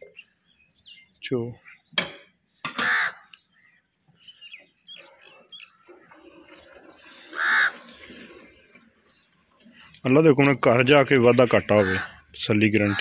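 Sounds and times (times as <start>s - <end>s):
small birds chirping: 0.0s - 13.0s
crow cawing: 2.8s - 3.4s, 7.3s - 7.8s, 11.7s - 12.2s.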